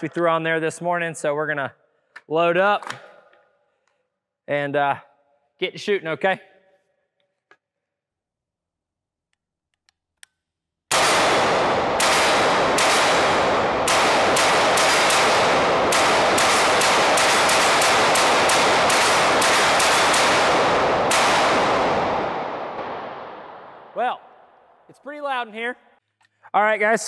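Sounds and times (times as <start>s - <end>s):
rifle shots echoing: 10.9s - 24.6s.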